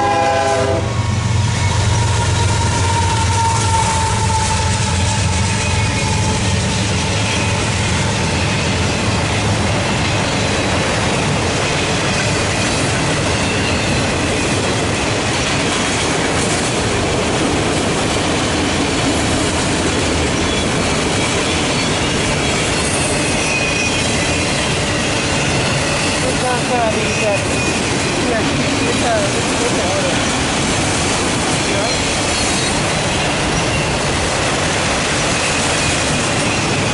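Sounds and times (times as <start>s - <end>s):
freight cars rumbling on rails: 0.0s - 36.9s
high wheel squeal: 1.3s - 9.4s, 10.0s - 10.8s, 12.2s - 14.6s, 20.4s - 28.4s, 31.6s - 34.3s, 35.2s - 36.9s.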